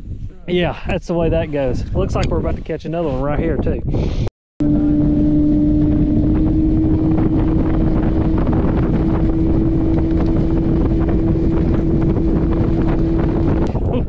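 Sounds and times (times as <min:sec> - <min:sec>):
wind buffeting microphone: 0:00.0 - 0:14.0
outboard motor running: 0:04.6 - 0:13.7.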